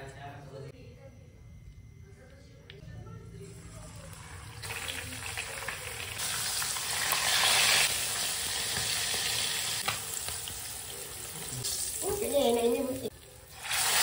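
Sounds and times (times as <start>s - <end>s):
fish deep-frying in hot oil: 4.0s - 14.0s.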